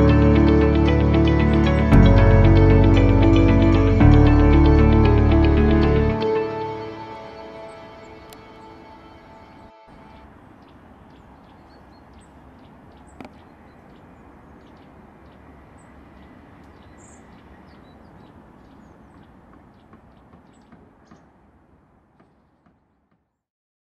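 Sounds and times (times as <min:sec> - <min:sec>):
sustained music notes: 0:00.0 - 0:10.4
small birds chirping: 0:07.5 - 0:22.8.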